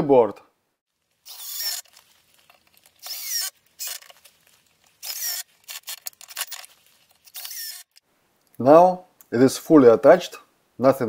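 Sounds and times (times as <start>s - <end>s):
cordless drill driving screws: 1.2s - 2.0s, 2.8s - 4.3s, 4.9s - 8.0s.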